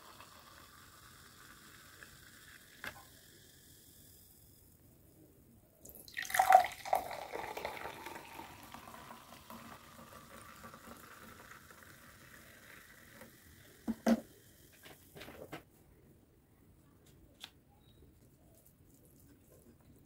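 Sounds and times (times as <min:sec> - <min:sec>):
soda fizzing: 0:00.0 - 0:04.7, 0:05.8 - 0:15.2
liquid splashing into glass: 0:05.9 - 0:11.1.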